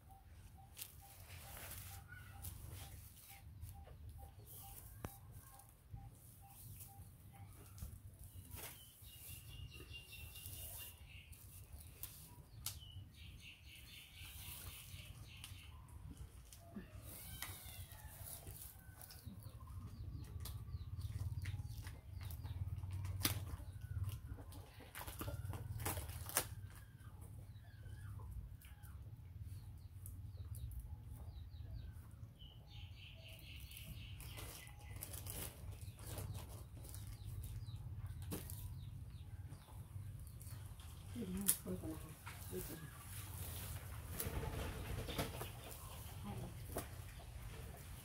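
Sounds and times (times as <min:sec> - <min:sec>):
plastic wrapping crinkling: 0:34.2 - 0:37.6.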